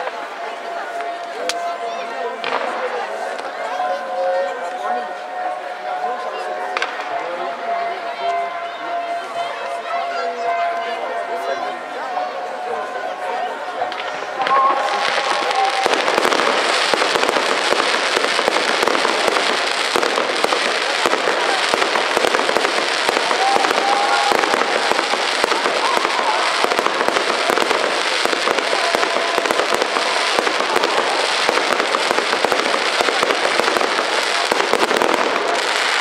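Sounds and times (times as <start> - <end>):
fireworks pops and crackles: 13.9 - 36.0.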